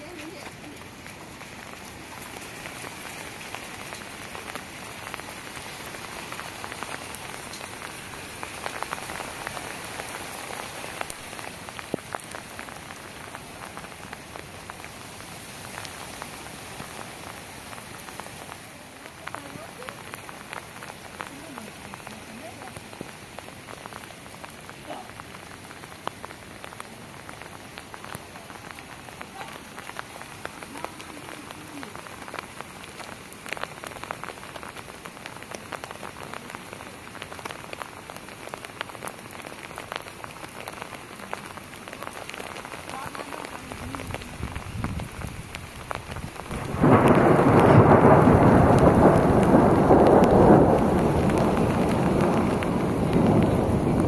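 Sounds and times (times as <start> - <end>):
steady rain falling: 0.0 - 54.0
thunder rolling: 43.7 - 54.0.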